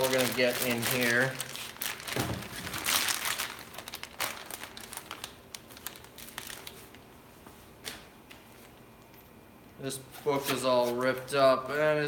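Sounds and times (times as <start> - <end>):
plastic bag crinkling: 0.0 - 7.1.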